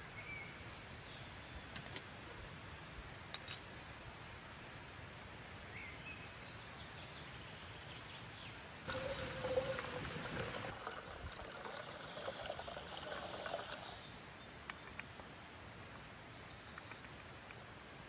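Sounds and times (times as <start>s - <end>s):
water pouring into metal kettle: 8.9s - 14.0s.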